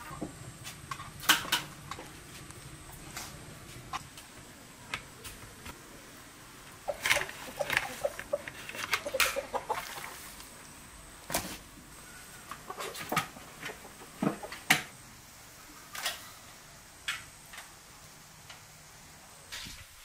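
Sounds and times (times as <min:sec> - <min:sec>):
hens clucking: 0:06.7 - 0:10.5, 0:12.4 - 0:14.7.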